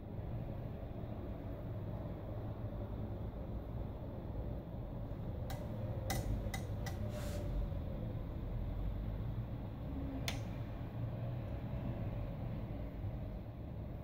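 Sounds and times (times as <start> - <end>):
metal tongs clicking on glass: 5.5 - 7.0
tongs scraping: 5.5 - 7.4.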